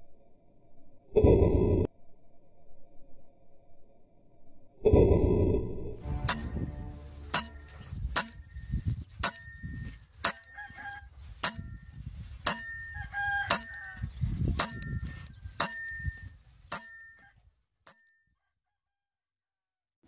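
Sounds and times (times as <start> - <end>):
low rumble: 0.8 - 8.8.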